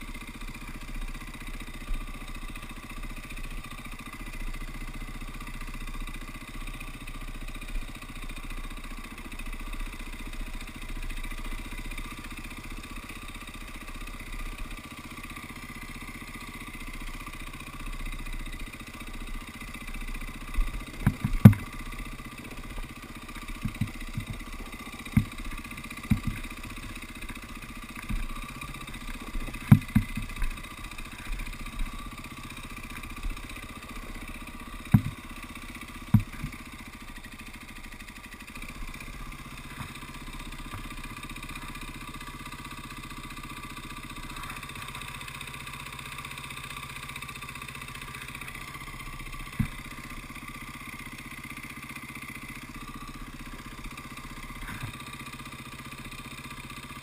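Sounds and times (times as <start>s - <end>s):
dirt bike engine running: 0.0s - 57.0s
bike knocking over rocks: 20.6s - 37.4s, 38.8s - 42.2s, 49.4s - 50.1s, 54.2s - 55.2s.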